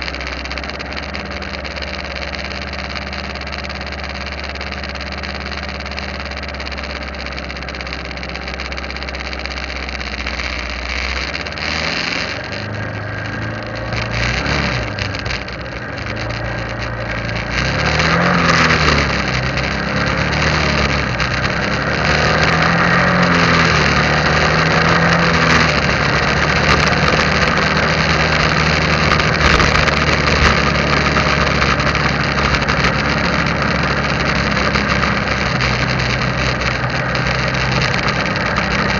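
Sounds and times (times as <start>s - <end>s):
motorcycle engine: 0.0s - 38.9s
wind and road noise: 0.0s - 38.9s.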